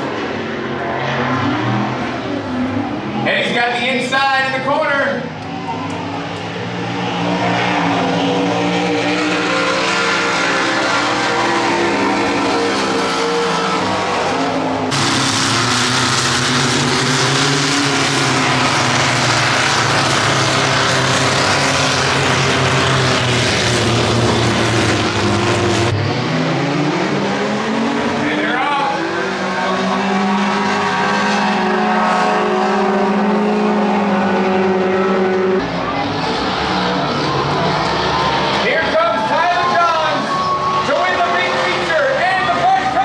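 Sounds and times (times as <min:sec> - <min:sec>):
racing engines revving: 0:00.0 - 0:43.0
vehicles plowing through water: 0:04.8 - 0:43.0.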